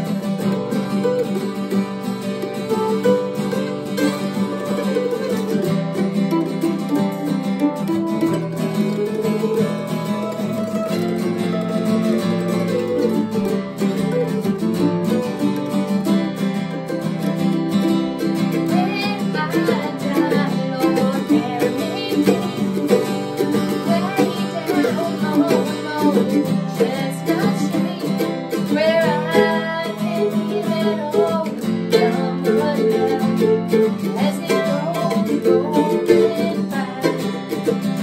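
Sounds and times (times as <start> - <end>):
acoustic guitar strumming: 0.0 - 38.0
mandolin picking: 0.0 - 38.0
woman singing: 18.3 - 38.0.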